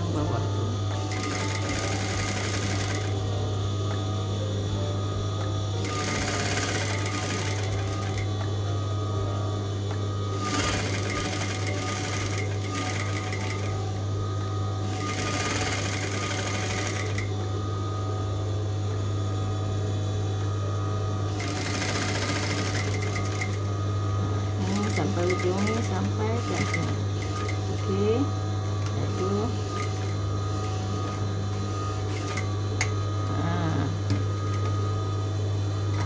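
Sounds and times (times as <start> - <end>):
sewing machine running: 0.9 - 3.3, 5.8 - 8.4, 10.3 - 14.1, 14.8 - 17.4, 21.3 - 23.8, 24.6 - 28.3, 29.0 - 31.2, 31.9 - 32.5, 34.1 - 35.1.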